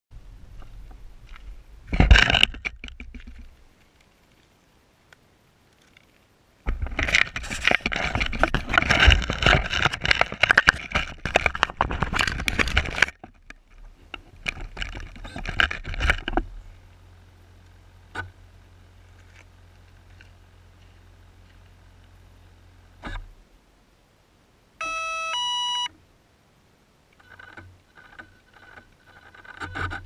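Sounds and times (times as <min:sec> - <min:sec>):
handling noise crackling: 0:00.5 - 0:16.9.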